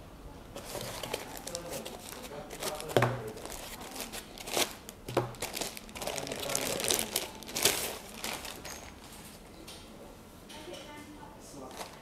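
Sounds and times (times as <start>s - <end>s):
foam packing handled: 0.6s - 8.9s
plastic bag crinkling: 0.6s - 9.1s, 11.7s - 12.0s.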